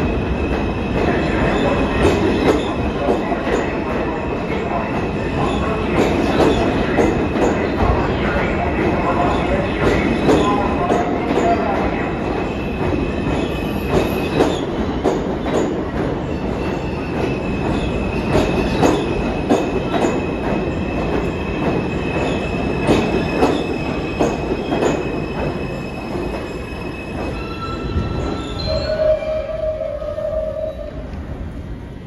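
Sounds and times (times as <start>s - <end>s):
train rumble: 0.0s - 32.0s
train wheels clacking over rail joints: 9.8s - 11.5s, 12.8s - 26.5s
high wheel squeal: 25.1s - 31.0s.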